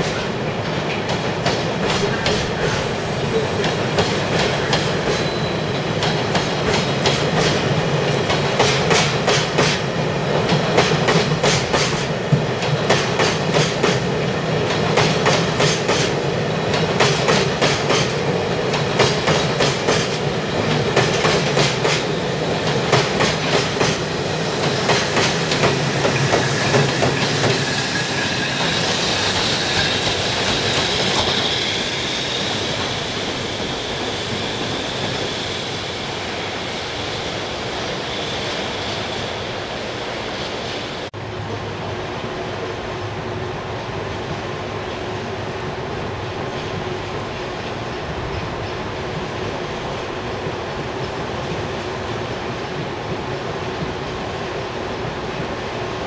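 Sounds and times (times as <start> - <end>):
train wheels clacking over rail joints: 0.0 - 31.8
electric locomotive whine: 0.0 - 56.0.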